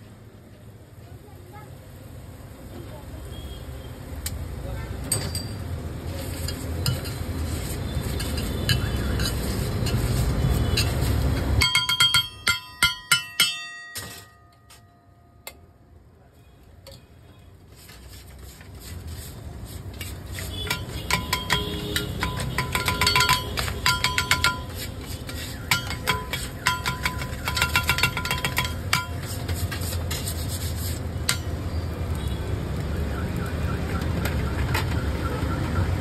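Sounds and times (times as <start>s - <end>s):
metal spatula clanking on griddle: 6.2s - 7.4s, 8.0s - 15.6s, 20.0s - 30.4s, 31.2s - 31.6s.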